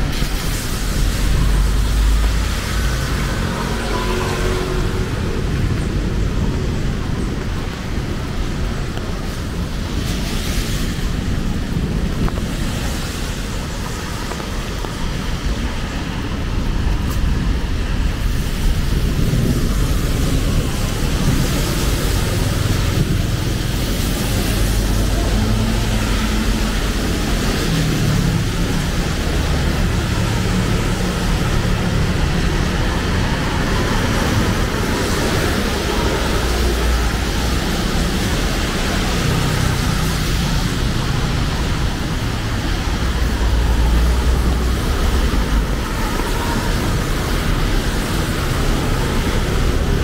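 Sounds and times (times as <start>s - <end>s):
heavy rain on street: 0.0s - 50.0s
road traffic: 0.0s - 50.0s.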